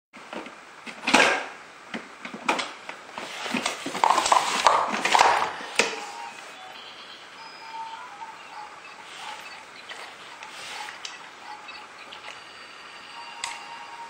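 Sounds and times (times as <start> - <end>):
toy blocks knocking and clattering: 3.8 - 5.6.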